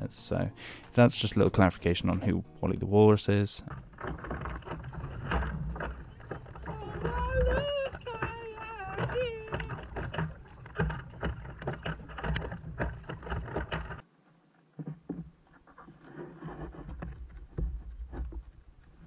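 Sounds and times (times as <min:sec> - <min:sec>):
kayak paddle splashing: 0:03.6 - 0:14.0
water slapping hull: 0:03.6 - 0:14.0.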